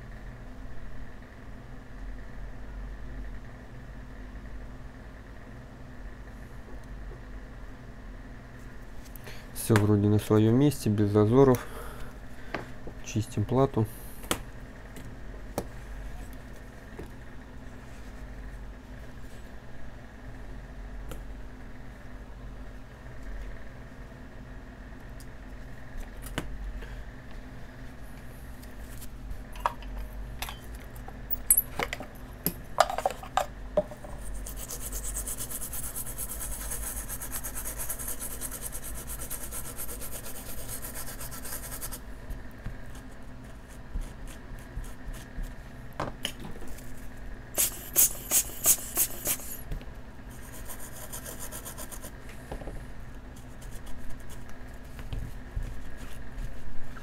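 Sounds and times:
brush scrubbing circuit board: 34.2s - 42.0s, 50.4s - 52.1s.

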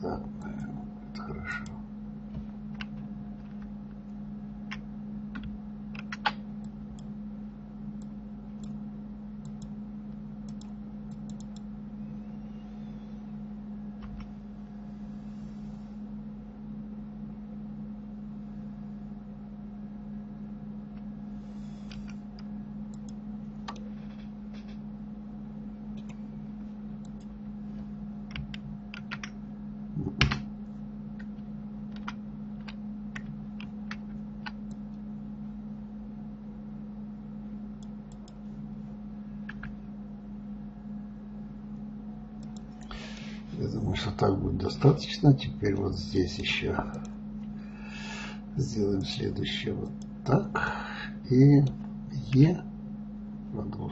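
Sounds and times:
steady low hum: 0.0s - 53.9s
keyboard and mouse clicks: 4.7s - 7.1s, 9.4s - 9.8s, 10.4s - 11.7s, 21.8s - 24.8s, 26.0s - 26.2s, 27.0s - 27.3s, 28.3s - 29.4s, 31.2s - 34.9s, 37.8s - 38.4s.

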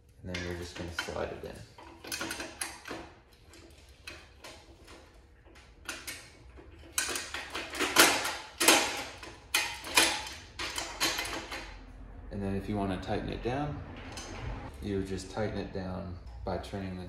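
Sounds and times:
metal-on-metal scraping and clunks: 0.3s - 11.8s, 13.8s - 14.7s.

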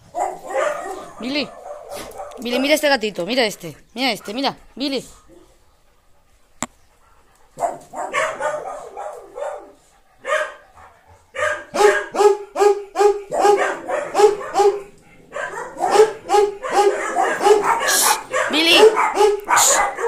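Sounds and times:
dog barking: 0.0s - 2.7s, 7.6s - 10.7s, 11.3s - 20.0s.

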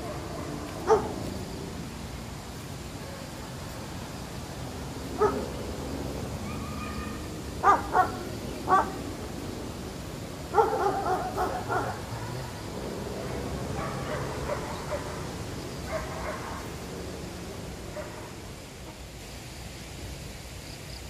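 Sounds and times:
dog barking: 0.0s - 1.2s, 5.2s - 5.5s, 6.4s - 9.0s, 10.5s - 16.8s, 17.9s - 18.4s.

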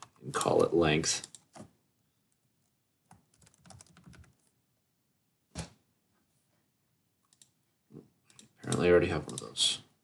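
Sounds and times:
keyboard typing: 2.3s - 4.6s.

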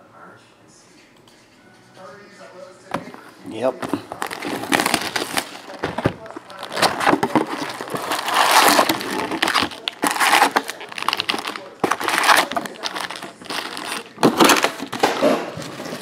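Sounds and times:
foil wrappers crinkling: 3.0s - 16.0s
card packs knocking down: 3.8s - 16.0s.

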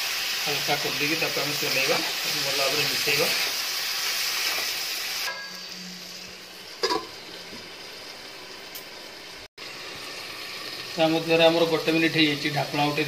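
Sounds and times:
chicken sizzling in a pan: 0.0s - 13.0s
metal clank: 5.3s - 5.8s, 6.8s - 7.2s.

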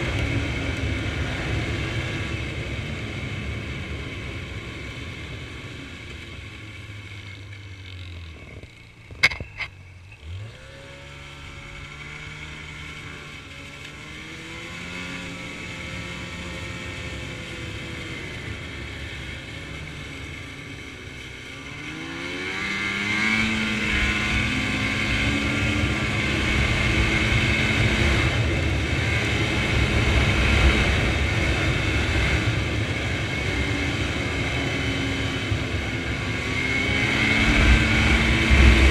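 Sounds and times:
snowmobile engine running: 0.0s - 38.9s.

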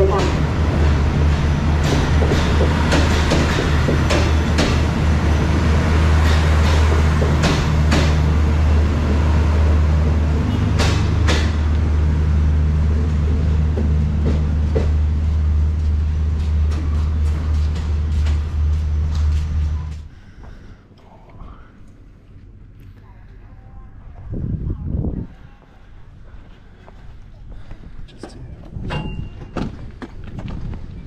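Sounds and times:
wheels clacking over rail joints: 0.0s - 12.2s
train rolling low drone: 0.0s - 31.0s.

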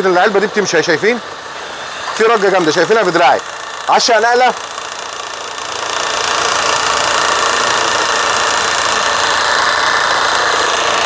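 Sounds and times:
car engine idling roughly: 2.2s - 11.0s.

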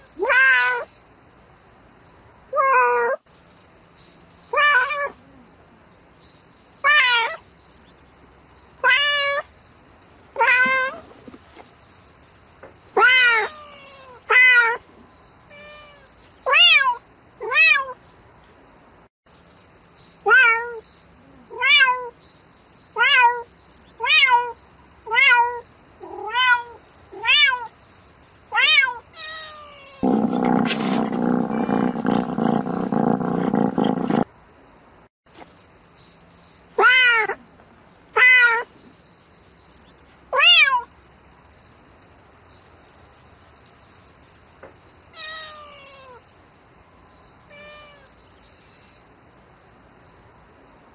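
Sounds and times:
cat meowing: 0.1s - 0.9s, 4.5s - 5.2s, 6.8s - 7.4s, 10.4s - 11.1s, 13.0s - 14.8s, 15.5s - 18.0s, 20.3s - 20.8s, 21.5s - 22.2s, 23.0s - 27.7s, 28.5s - 34.3s, 36.8s - 37.4s, 38.2s - 38.7s, 40.4s - 40.9s, 45.1s - 46.2s, 47.5s - 48.1s.

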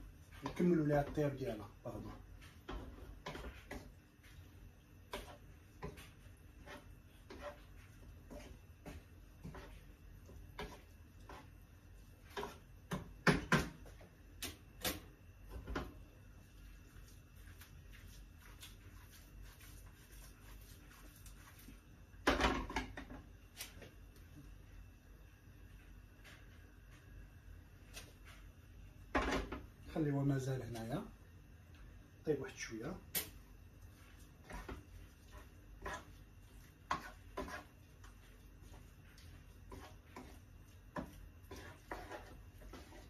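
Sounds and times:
spoon stirring pasta in sauce: 0.0s - 14.7s, 33.2s - 43.0s
spoon knocking on pan: 12.4s - 13.9s.

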